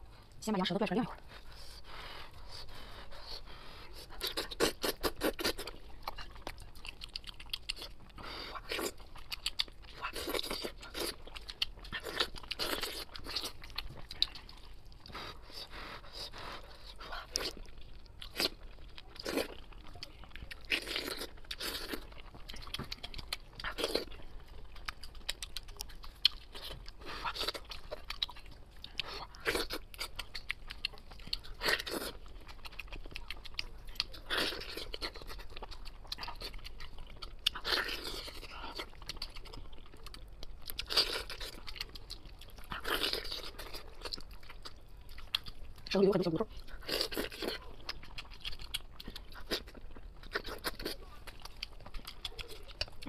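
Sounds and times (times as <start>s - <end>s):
wet crunching chewing: 1.3s - 53.0s.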